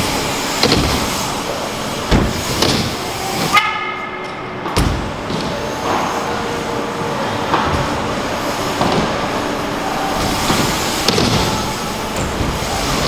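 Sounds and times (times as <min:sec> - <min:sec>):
wheels thumping on ramps: 0:00.0 - 0:03.7, 0:10.2 - 0:13.0
bike tyres rolling on ramps: 0:00.0 - 0:13.0
steady pitched buzz: 0:00.0 - 0:13.0.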